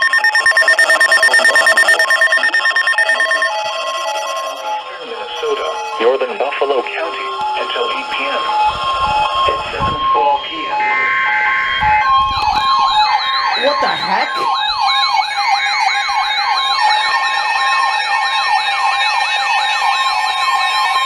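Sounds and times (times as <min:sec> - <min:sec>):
beeping alert tones: 0:00.0 - 0:06.2, 0:07.9 - 0:16.1
siren-like rising wails: 0:00.0 - 0:21.0.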